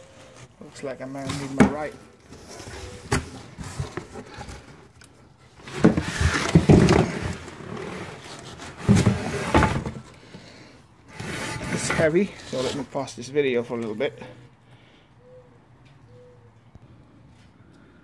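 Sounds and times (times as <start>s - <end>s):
cardboard box rustling and scraping: 0.1s - 4.9s, 5.5s - 13.1s
knocks and handling noise: 1.3s - 10.5s.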